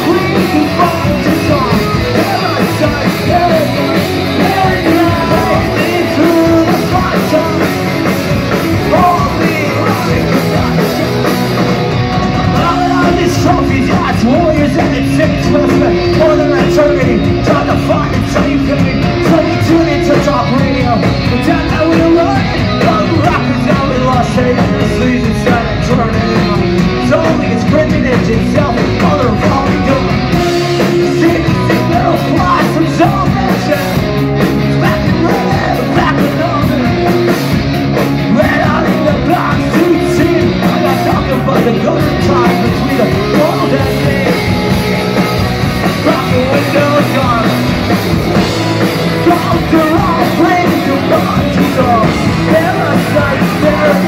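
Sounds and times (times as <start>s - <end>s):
person singing: 0.0s - 37.6s, 38.2s - 54.0s
drum kit: 0.0s - 54.0s
electric guitars: 0.0s - 54.0s.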